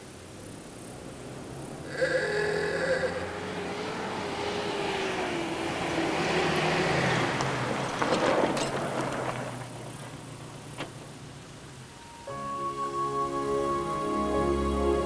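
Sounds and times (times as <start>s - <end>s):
truck engine driving past: 0.8s - 10.8s
truck rattling: 6.5s - 11.3s.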